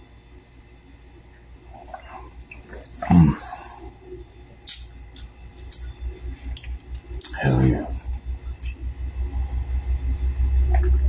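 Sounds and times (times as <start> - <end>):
lip smack: 4.7 - 5.9.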